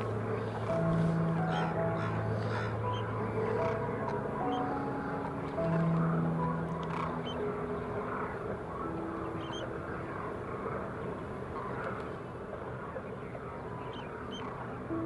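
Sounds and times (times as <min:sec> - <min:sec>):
quiet background music: 0:00.0 - 0:15.0.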